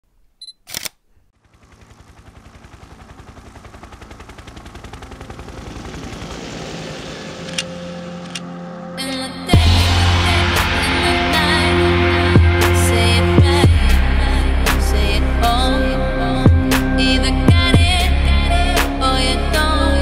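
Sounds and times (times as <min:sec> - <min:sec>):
short clicks: 0:00.4 - 0:01.0
pulsing synth: 0:01.4 - 0:20.0
held low synth tones: 0:04.9 - 0:20.0.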